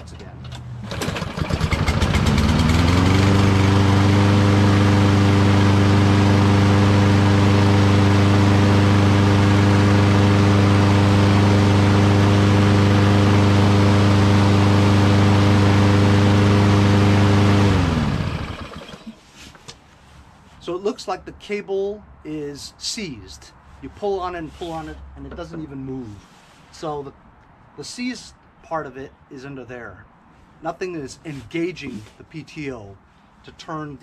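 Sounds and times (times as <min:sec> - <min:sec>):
lawn mower engine running: 0:00.8 - 0:19.2.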